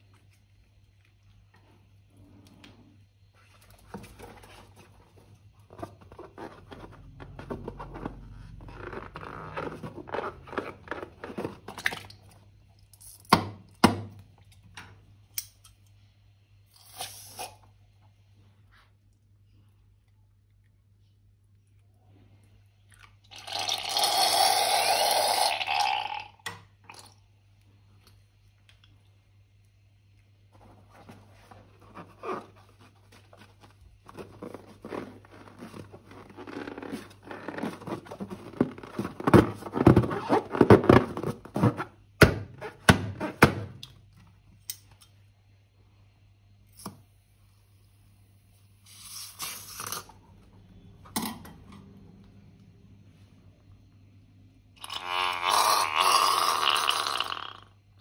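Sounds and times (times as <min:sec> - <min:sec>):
balloon crackling and crunching: 0:31.8 - 0:42.0.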